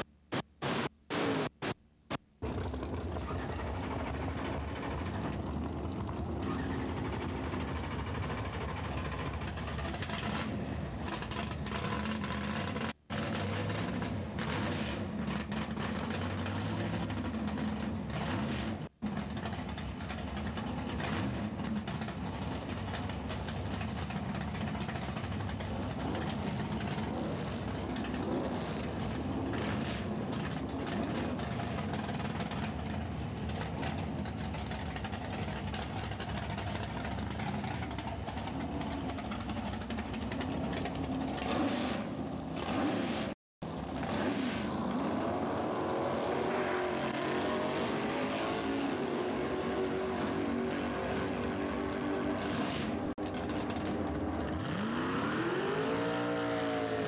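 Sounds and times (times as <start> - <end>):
race car engine idling: 2.4 - 10.1, 30.4 - 41.4.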